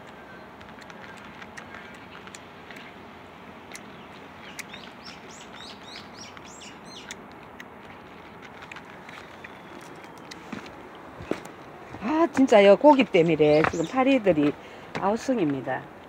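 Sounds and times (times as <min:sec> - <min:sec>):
small bird chirping: 0:03.6 - 0:10.7.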